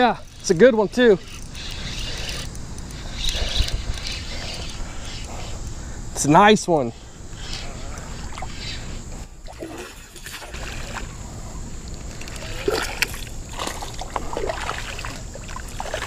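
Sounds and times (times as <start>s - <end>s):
fish thrashing and splashing: 9.4s - 11.1s, 12.4s - 16.0s.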